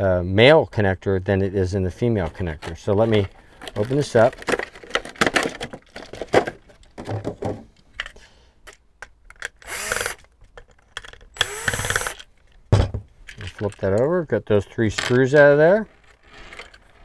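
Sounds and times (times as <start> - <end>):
cordless drill whirring: 9.6 - 10.3, 11.4 - 12.3.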